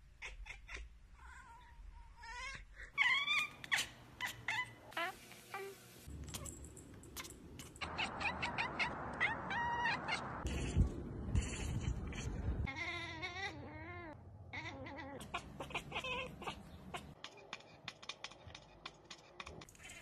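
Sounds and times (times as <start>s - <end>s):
cats meowing and yowling: 2.2s - 5.0s, 7.8s - 10.3s, 12.6s - 17.2s.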